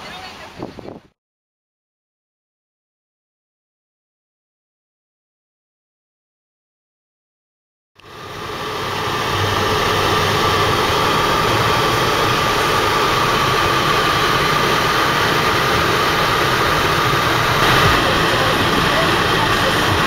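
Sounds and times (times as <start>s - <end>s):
road and wind noise in car: 0.2s - 1.1s, 8.0s - 20.0s.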